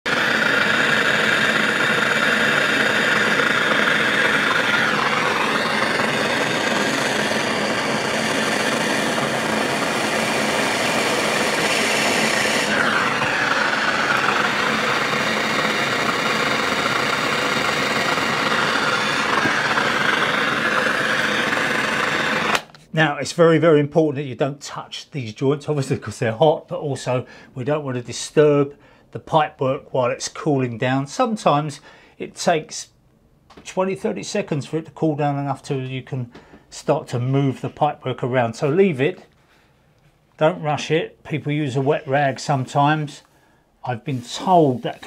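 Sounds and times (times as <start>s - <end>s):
blowtorch flame burning: 0.0s - 22.7s.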